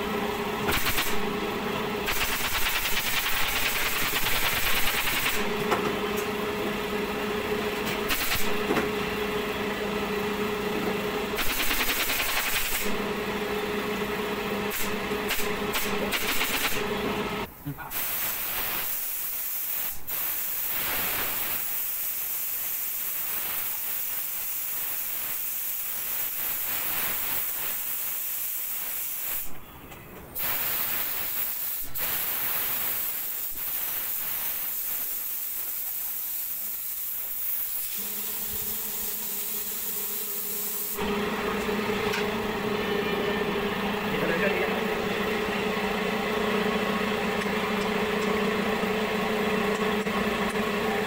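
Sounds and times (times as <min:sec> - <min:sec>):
air spray gun hissing: 0:00.7 - 0:01.3, 0:02.0 - 0:05.6, 0:08.0 - 0:08.7, 0:11.4 - 0:13.0, 0:14.6 - 0:16.9, 0:17.9 - 0:29.6, 0:30.4 - 0:45.2.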